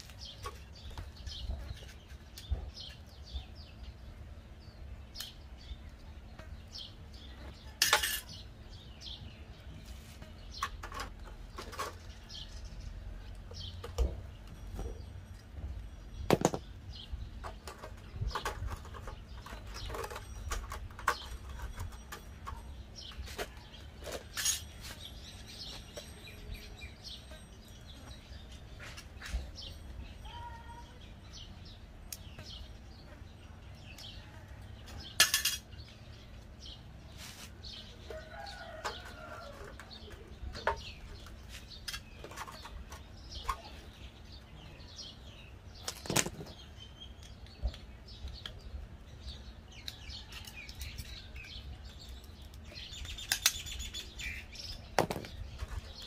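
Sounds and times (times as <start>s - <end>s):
metal tools clicking and clanking: 7.7s - 8.4s, 13.3s - 30.6s, 34.8s - 35.8s.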